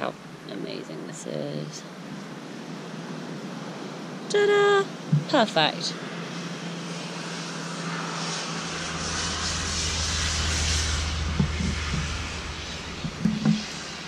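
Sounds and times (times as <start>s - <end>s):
vehicle passing by: 5.9s - 14.0s.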